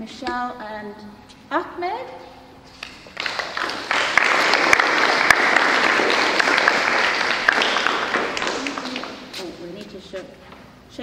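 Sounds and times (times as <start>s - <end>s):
children applauding: 3.1s - 9.3s.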